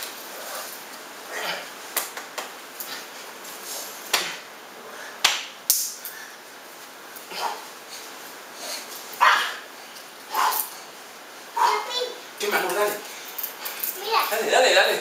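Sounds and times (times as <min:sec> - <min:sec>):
sharp smacks and knocks: 0:04.1 - 0:04.5, 0:05.2 - 0:06.0.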